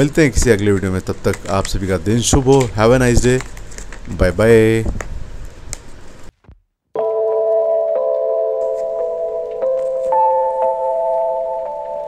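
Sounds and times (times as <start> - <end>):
soft chime-like chords: 7.0 - 12.0.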